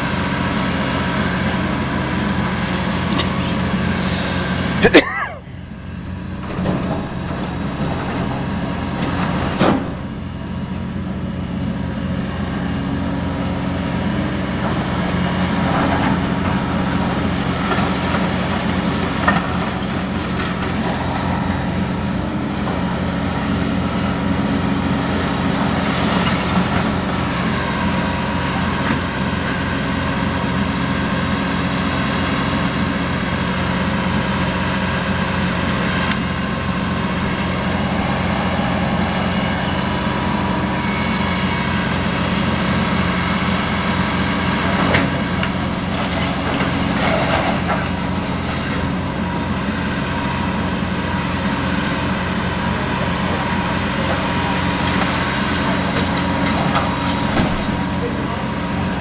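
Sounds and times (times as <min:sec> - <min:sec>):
excavator diesel engines running: 0:00.0 - 0:59.0.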